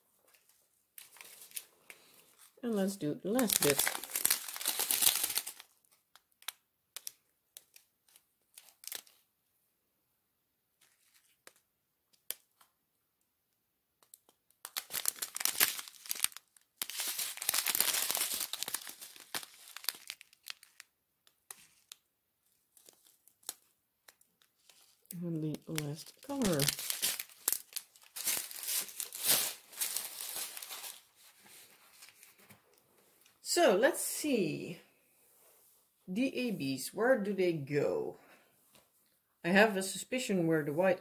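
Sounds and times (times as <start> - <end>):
plastic bags crinkling: 0.3 - 9.2, 14.2 - 32.6.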